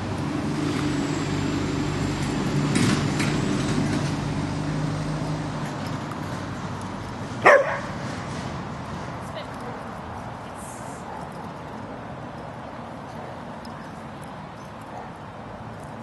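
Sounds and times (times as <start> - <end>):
vehicle engine hum: 0.0 - 16.0
dog barking: 7.4 - 7.9.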